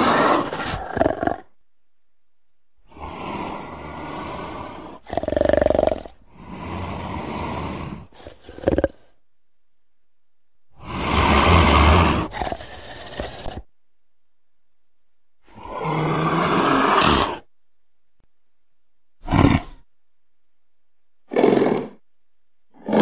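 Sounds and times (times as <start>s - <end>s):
leopard growling and snarling: 0.0s - 1.5s, 2.9s - 9.1s, 10.8s - 13.7s, 15.5s - 17.5s, 19.2s - 19.8s, 21.3s - 22.0s, 22.8s - 23.0s.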